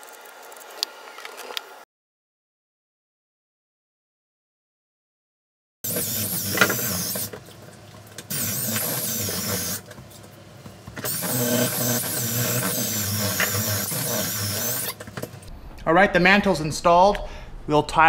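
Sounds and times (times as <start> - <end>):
power drill whining: 5.9 - 7.4, 8.3 - 9.8, 11.0 - 15.0.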